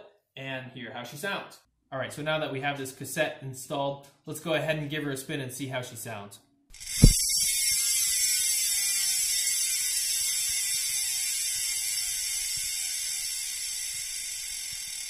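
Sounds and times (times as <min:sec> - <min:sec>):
bicycle hub ratcheting buzz: 0:06.7 - 0:15.0.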